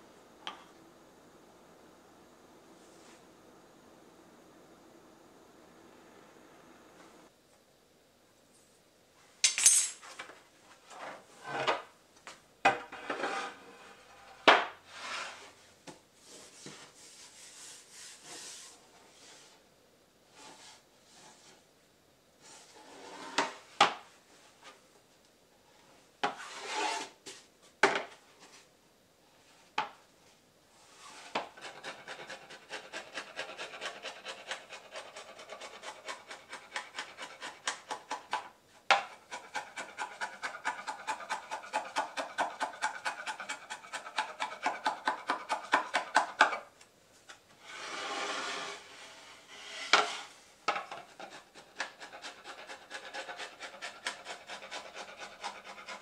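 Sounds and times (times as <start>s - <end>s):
hand file rasping on board: 31.1s - 38.2s, 38.9s - 46.5s, 49.5s - 56.0s.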